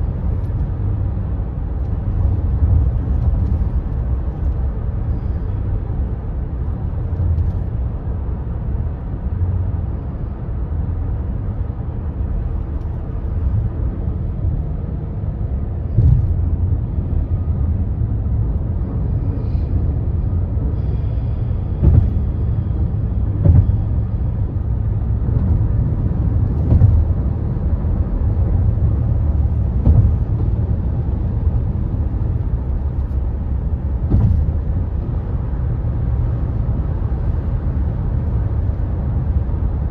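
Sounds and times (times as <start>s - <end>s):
tyre and road rumble: 0.0s - 39.9s
wheels thumping on bridge joints: 21.7s - 22.5s, 23.2s - 24.4s, 26.4s - 27.4s, 29.3s - 30.7s, 33.8s - 34.9s.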